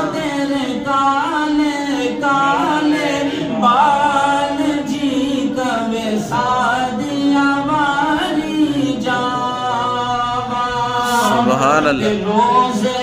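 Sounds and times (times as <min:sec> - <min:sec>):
man singing unaccompanied: 0:00.0 - 0:13.0.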